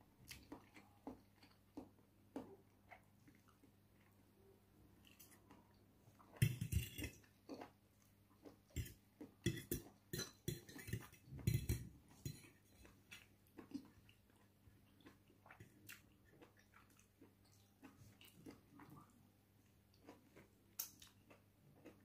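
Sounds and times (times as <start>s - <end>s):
metal fork clinking on plate: 8.8s - 12.6s.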